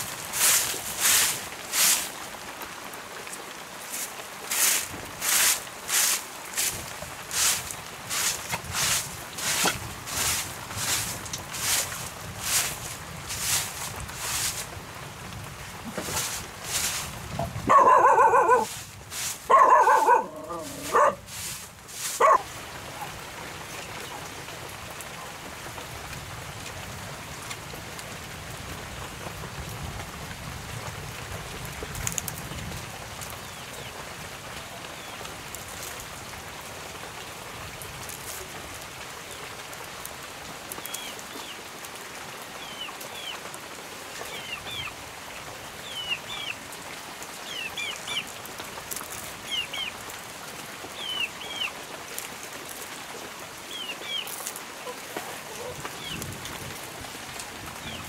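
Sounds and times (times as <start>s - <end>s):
steady rain: 0.0s - 58.0s
dog barking: 17.7s - 18.8s, 19.5s - 21.2s, 22.2s - 23.1s, 54.8s - 55.8s.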